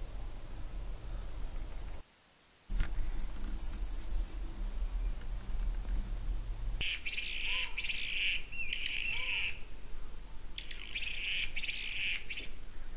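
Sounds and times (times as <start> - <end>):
hummingbird singing buzzy song: 2.7 - 7.2.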